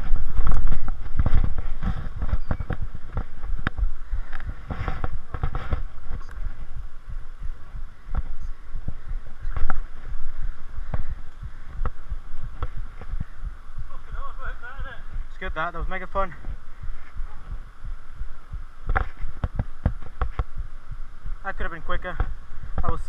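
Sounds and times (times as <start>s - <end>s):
bike and camera knocks and thumps: 0.0s - 6.6s, 10.8s - 13.4s, 18.9s - 20.6s
breathy puffs: 0.5s - 14.0s.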